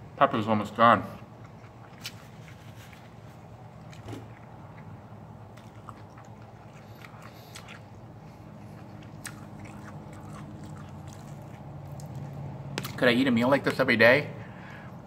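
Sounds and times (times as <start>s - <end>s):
man chewing food: 1.2s - 13.0s.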